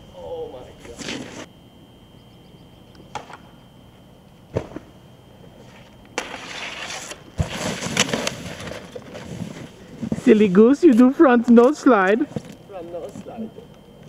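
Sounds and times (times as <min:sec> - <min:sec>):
snowboard scraping metal handrail: 0:05.6 - 0:10.4
snowboard sliding through slush: 0:06.2 - 0:10.4.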